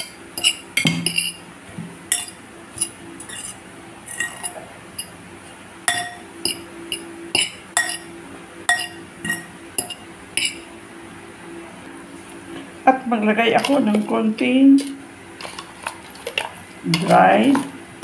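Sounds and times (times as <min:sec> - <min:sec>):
metal fork clinking against bowl: 0:02.1 - 0:03.5, 0:05.9 - 0:08.1, 0:08.7 - 0:10.6.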